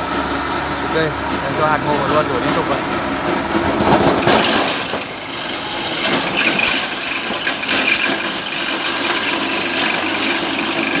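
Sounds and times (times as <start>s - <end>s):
motor humming: 3.7s - 11.0s
dense rattle of kernels: 4.2s - 11.0s.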